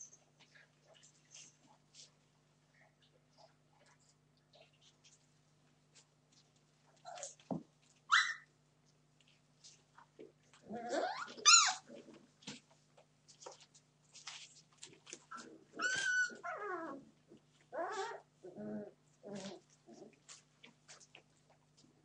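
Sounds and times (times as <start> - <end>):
puppies yelping and squealing: 10.9 - 11.9, 15.3 - 17.0
puppies growling: 15.3 - 20.2.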